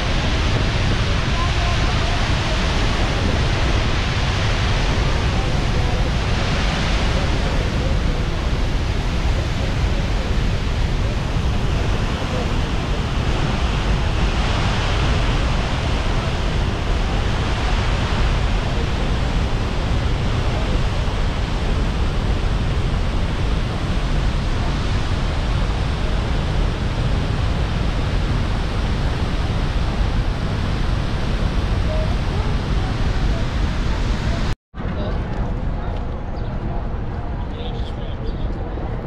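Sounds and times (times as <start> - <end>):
waterfall roaring: 0.0 - 34.6.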